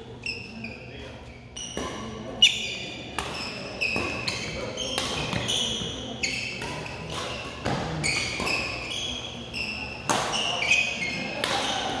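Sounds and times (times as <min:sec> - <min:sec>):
shoes squeaking on floor: 0:00.2 - 0:11.9
racket striking shuttlecock: 0:03.1 - 0:05.8, 0:06.6 - 0:08.7, 0:10.0 - 0:10.5.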